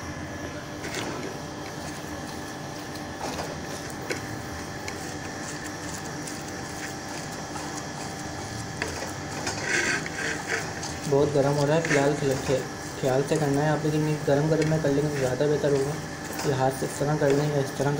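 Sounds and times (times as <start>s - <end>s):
mechanical hum: 0.0s - 17.9s
hands scraping on ceramic plate: 8.8s - 12.2s.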